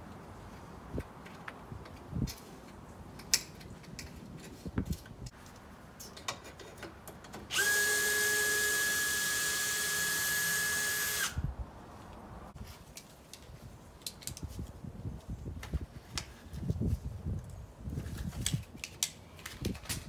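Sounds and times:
cordless drill running: 7.5s - 11.4s.

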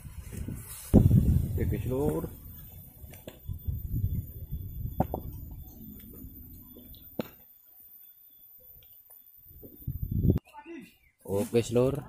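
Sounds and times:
footsteps through grass: 0.0s - 3.5s
microphone handling knocks: 5.0s - 5.4s.

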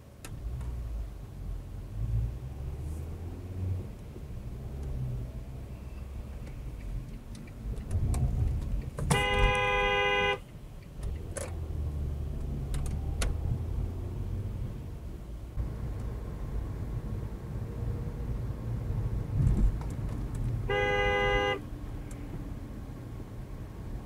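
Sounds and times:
car driving rumble: 0.0s - 24.0s
car horn blare: 9.1s - 10.5s, 20.7s - 21.7s.

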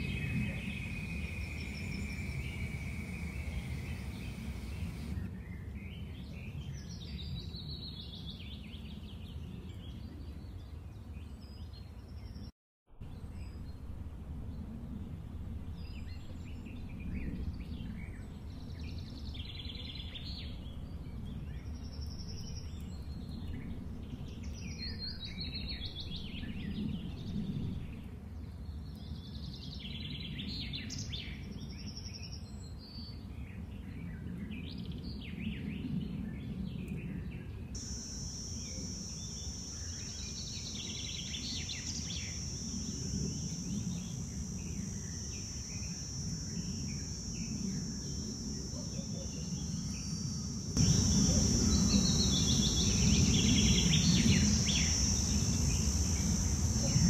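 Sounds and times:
small birds chirping: 0.0s - 12.5s, 37.8s - 57.0s
high-pitched insect drone: 0.5s - 5.2s, 37.8s - 57.0s.

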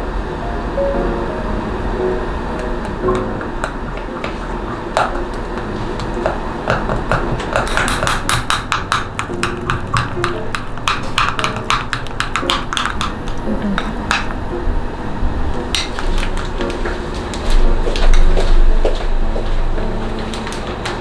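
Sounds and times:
low rumble: 13.0s - 20.2s.

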